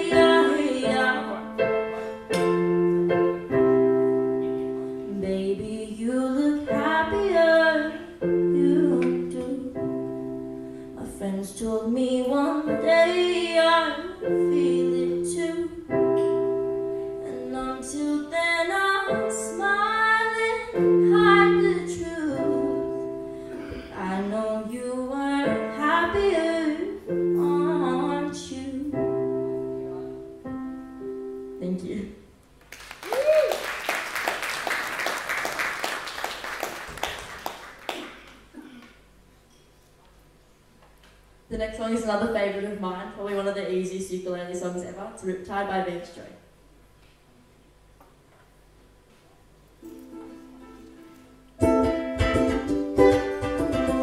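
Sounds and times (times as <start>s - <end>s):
young woman singing: 0.0s - 1.5s, 5.1s - 10.1s, 11.0s - 16.4s, 17.2s - 23.2s, 23.9s - 29.2s
electric keyboard chords: 0.0s - 5.8s, 6.6s - 11.3s, 12.7s - 24.3s, 25.5s - 32.0s, 49.8s - 54.0s.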